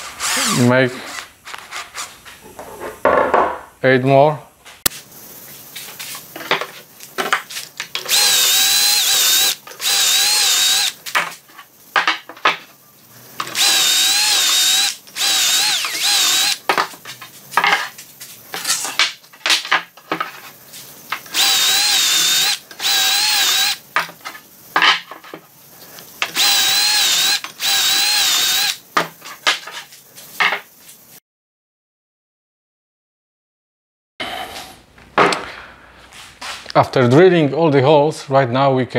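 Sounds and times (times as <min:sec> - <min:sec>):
cordless drill whining: 0:00.2 - 0:00.6, 0:08.0 - 0:11.0, 0:13.4 - 0:16.6, 0:21.3 - 0:23.8, 0:26.3 - 0:28.8.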